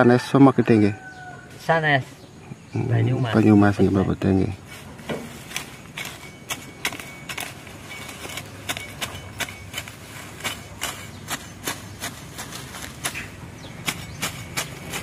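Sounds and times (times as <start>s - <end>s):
sickle cutting grass: 3.4s - 15.0s.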